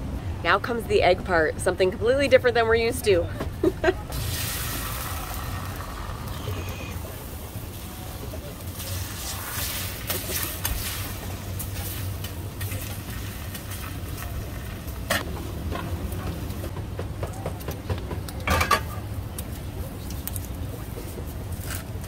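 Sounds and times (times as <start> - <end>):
egg sizzling on griddle: 4.1 - 15.2.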